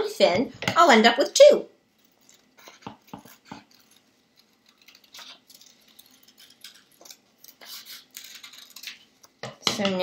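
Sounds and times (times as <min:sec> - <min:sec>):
scissors snipping paper: 0:02.2 - 0:09.0.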